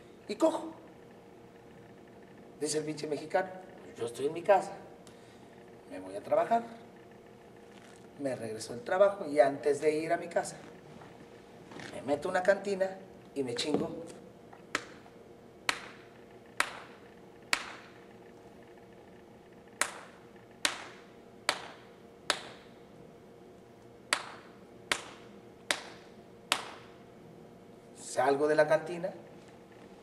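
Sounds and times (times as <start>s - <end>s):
hand slapping bare skin: 14.7s - 15.0s, 15.7s - 16.0s, 16.6s - 18.0s, 19.8s - 22.7s, 24.1s - 26.9s.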